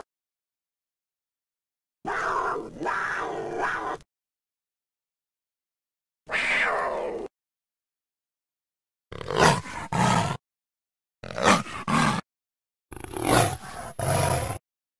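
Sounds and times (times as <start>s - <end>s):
dinosaur roaring: 9.2s - 10.4s, 11.3s - 12.2s, 13.0s - 14.6s.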